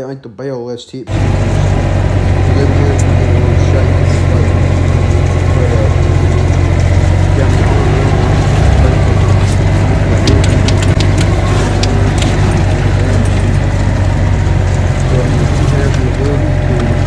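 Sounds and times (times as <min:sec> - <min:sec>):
diesel engine running under load: 0:01.1 - 0:17.0.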